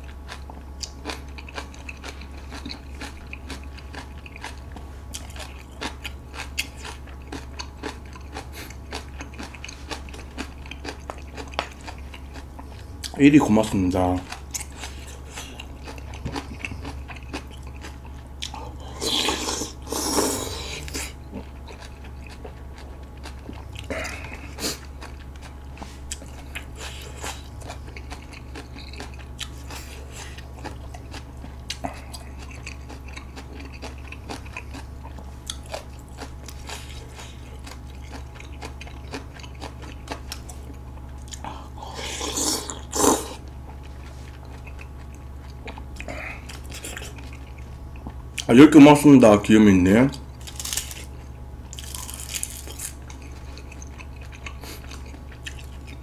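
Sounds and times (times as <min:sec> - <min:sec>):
low hum: 0:00.0 - 0:48.5
wet chewing and mouth clicks: 0:00.0 - 0:48.5, 0:50.1 - 0:56.0
noodle slurps: 0:19.0 - 0:21.2, 0:42.0 - 0:43.4.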